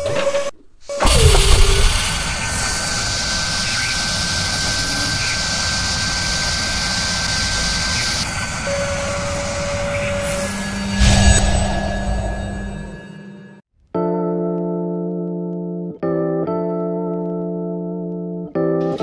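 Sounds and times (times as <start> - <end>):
machine spindle whirring: 0.0 - 13.6
low hum: 0.9 - 13.6.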